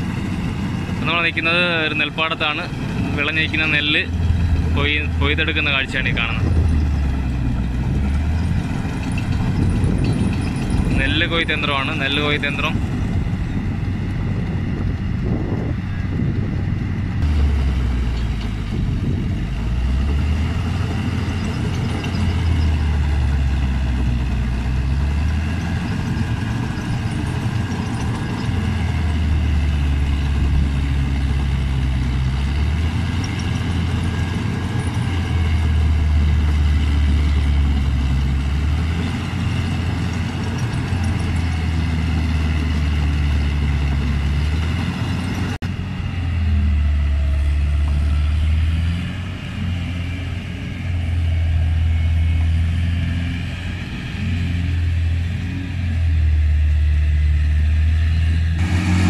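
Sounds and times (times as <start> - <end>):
combine harvester engine drone: 0.0 - 59.0.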